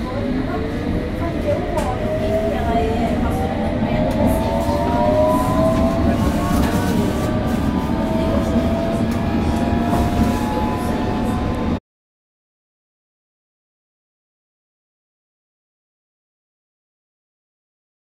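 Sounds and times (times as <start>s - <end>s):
train wheels rumbling on track: 0.0s - 11.8s
train whining tones: 0.0s - 11.8s.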